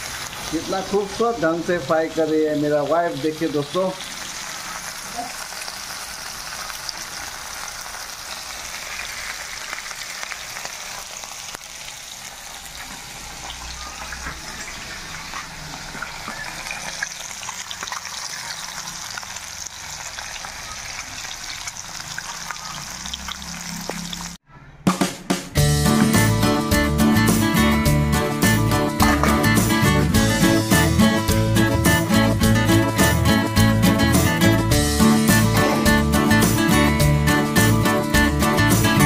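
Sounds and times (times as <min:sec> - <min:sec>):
fish sizzling in hot oil: 0:00.0 - 0:24.4.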